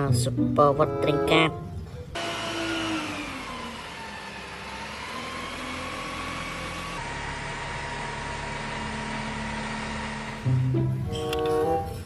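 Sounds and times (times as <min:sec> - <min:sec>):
truck engine running: 0:03.2 - 0:12.0.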